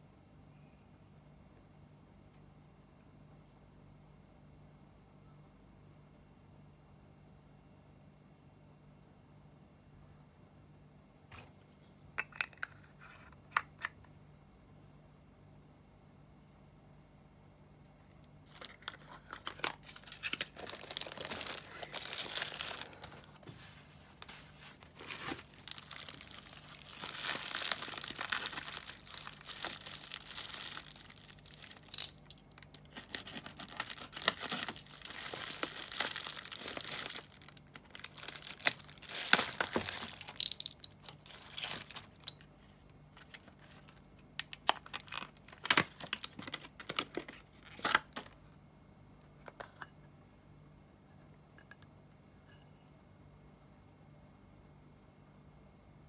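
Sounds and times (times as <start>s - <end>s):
plastic packaging crackling: 18.4s - 23.4s, 24.1s - 42.5s, 43.2s - 48.4s.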